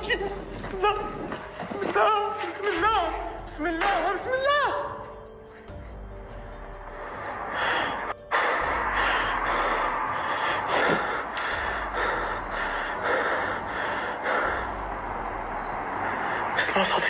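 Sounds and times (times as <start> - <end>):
man breathing hard: 5.5 - 16.6.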